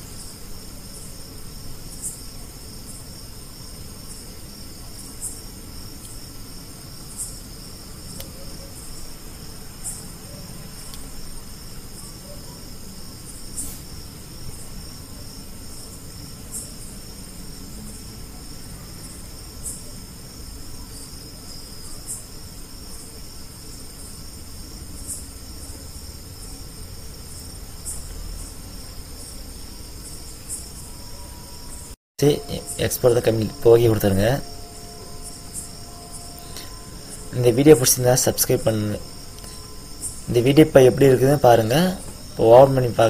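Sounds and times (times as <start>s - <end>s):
insect chirring: 0.0s - 43.0s
sharp insect chirp: 0.0s - 43.0s.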